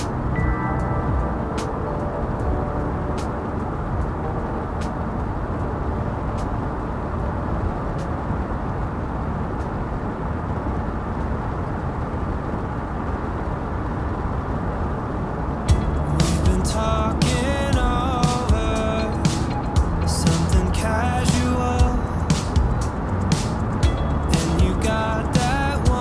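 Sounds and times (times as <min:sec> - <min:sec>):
car road noise rumble: 0:00.0 - 0:26.0.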